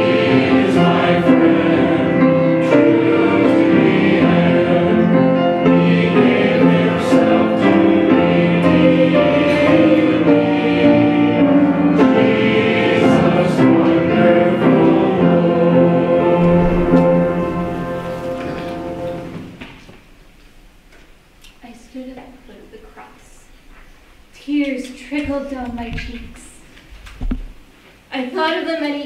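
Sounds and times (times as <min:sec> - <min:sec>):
choir singing held chords: 0:00.0 - 0:19.8.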